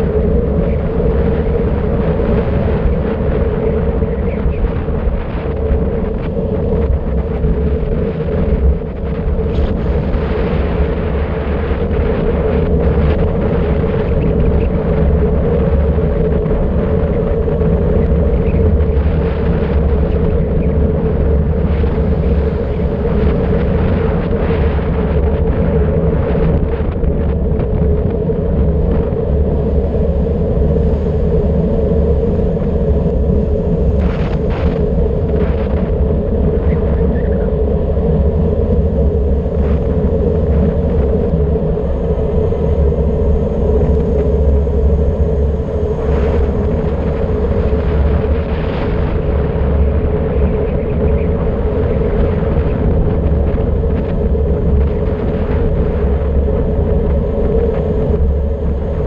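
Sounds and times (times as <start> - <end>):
wind rumbling on microphone: 0.0 - 59.0.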